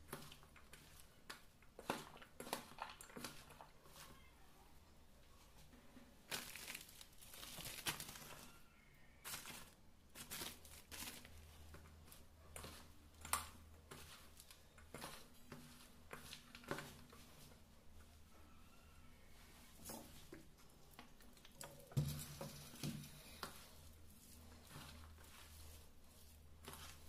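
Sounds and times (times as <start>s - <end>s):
hands tossing food in steel bowl: 0.0s - 4.2s, 19.6s - 27.0s.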